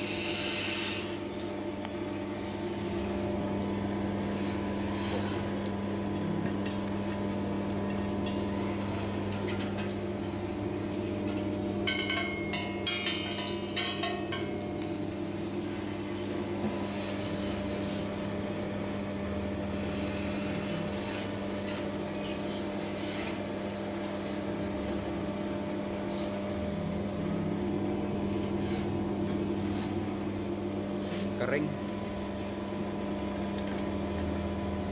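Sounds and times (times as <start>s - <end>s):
oil expeller motor humming: 0.0s - 34.9s.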